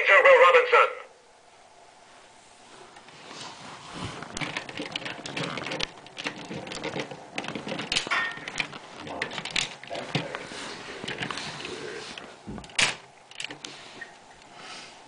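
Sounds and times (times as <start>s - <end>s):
plastic toy clicks and rattles: 4.4s - 10.3s.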